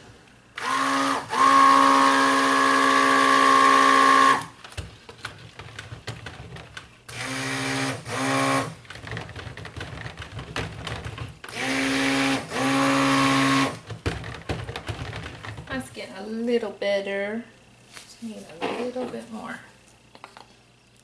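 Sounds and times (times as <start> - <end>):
stick blender motor: 0.6 - 4.5, 7.1 - 8.8, 11.5 - 13.9
blender knocking on plastic tub: 5.6 - 15.8.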